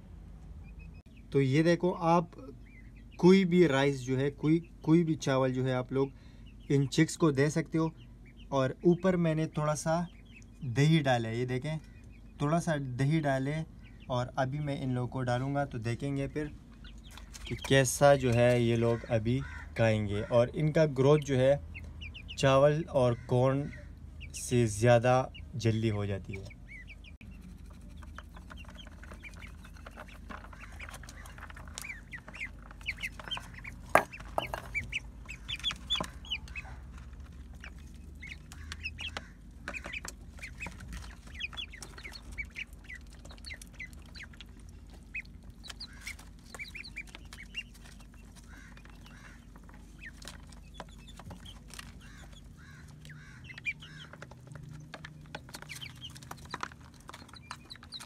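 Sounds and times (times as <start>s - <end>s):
chickens clucking: 0.6s - 58.0s
low hum: 26.2s - 57.9s
beaks tapping on plastic: 27.6s - 58.0s.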